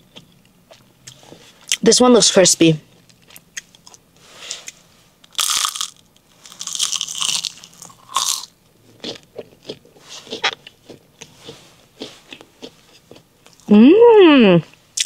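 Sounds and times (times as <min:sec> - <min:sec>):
crunchy biting and chewing: 0:03.0 - 0:13.7.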